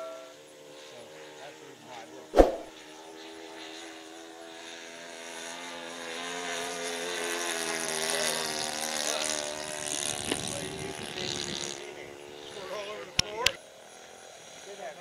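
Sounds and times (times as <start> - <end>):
model airplane motor droning: 0.0 - 15.0.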